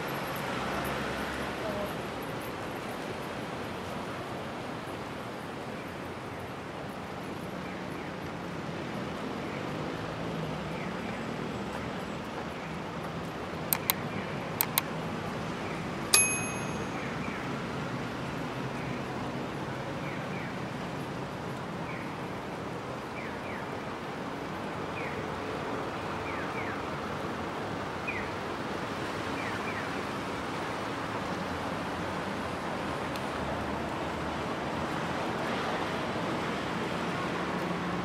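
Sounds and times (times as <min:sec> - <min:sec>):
street traffic: 0:00.0 - 0:38.0.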